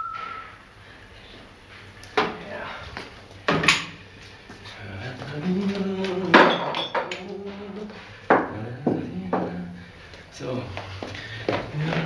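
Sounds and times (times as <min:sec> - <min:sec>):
crockery and cutlery clinking: 0:03.5 - 0:04.0, 0:06.3 - 0:07.6
man humming: 0:04.7 - 0:12.0.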